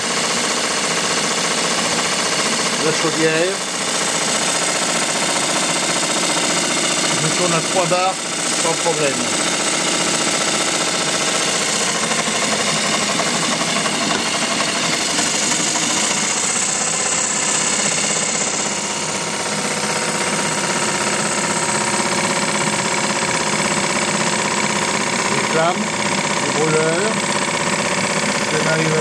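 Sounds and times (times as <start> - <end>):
model steam engine clattering: 0.6 - 29.0
boiler hissing: 2.1 - 29.0.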